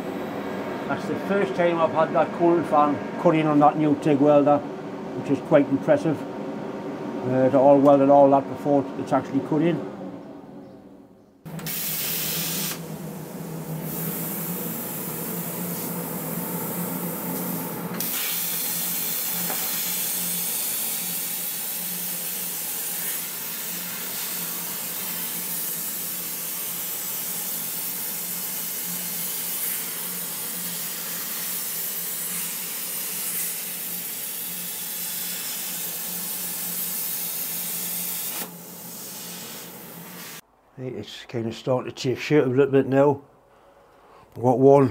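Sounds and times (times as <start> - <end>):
plasma cutter hissing: 11.5 - 13.2, 13.8 - 40.4.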